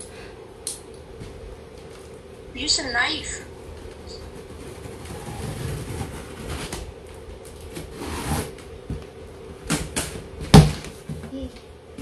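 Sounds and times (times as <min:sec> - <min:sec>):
cardboard rustling: 0:03.9 - 0:06.9.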